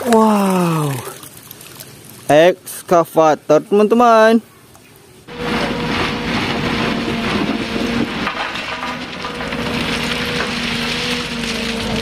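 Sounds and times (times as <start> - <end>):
excavator engine humming: 5.3 - 12.0
stones crunching and rattling in bucket: 5.4 - 12.0.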